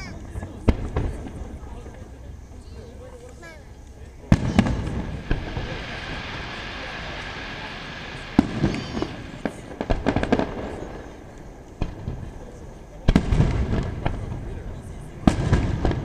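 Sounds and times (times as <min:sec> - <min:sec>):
firework hiss: 0:03.4 - 0:16.0
firework shells bursting: 0:03.8 - 0:12.4.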